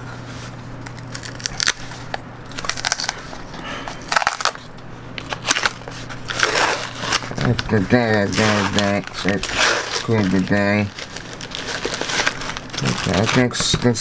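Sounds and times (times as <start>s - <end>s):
low steady hum: 0.0s - 14.0s
packaging crackling and crunching: 0.8s - 14.0s.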